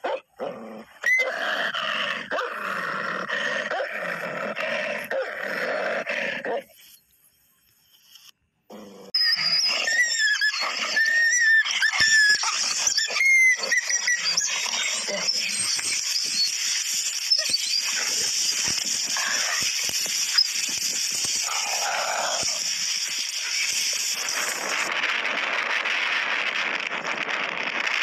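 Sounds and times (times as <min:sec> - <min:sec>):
dogs yelping and squealing: 0:00.8 - 0:02.6, 0:09.0 - 0:24.9
steady rushing noise: 0:14.1 - 0:28.0.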